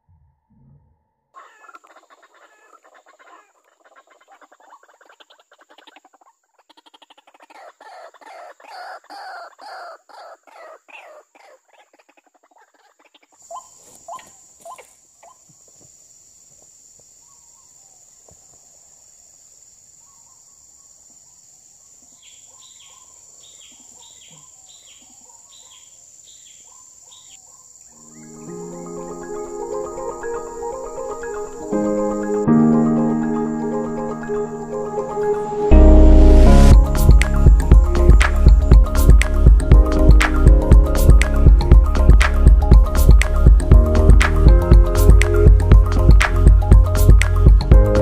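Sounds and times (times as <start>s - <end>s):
waterhen rhythmic calls: 1.4s - 15.4s, 26.7s - 35.8s
high insect drone: 25.6s - 35.7s.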